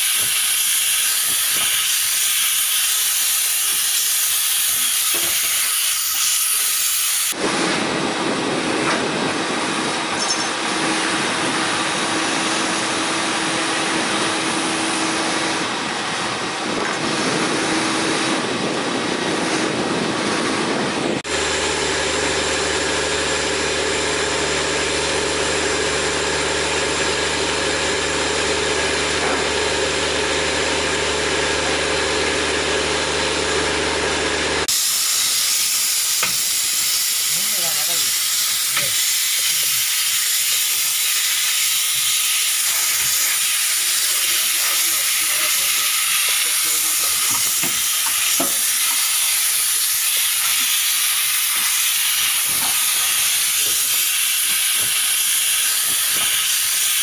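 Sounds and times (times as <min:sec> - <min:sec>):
pressure sprayer hissing: 0:00.0 - 0:07.4, 0:34.6 - 0:57.0.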